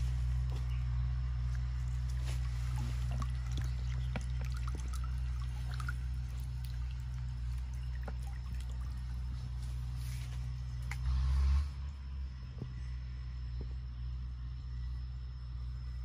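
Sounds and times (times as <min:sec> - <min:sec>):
steady low hum: 0:00.0 - 0:16.0
small splashes: 0:01.5 - 0:10.0
water pouring and trickling: 0:01.5 - 0:10.9.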